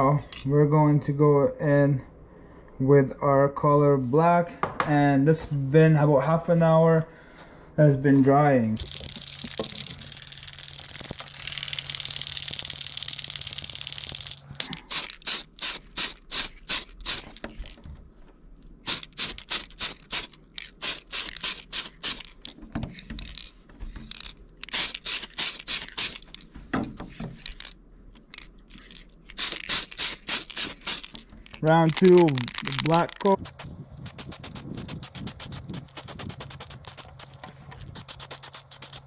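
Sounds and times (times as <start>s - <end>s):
spray can ball rattling: 8.8s - 17.8s, 18.8s - 26.5s, 27.4s - 39.0s
steady hiss: 29.3s - 39.0s.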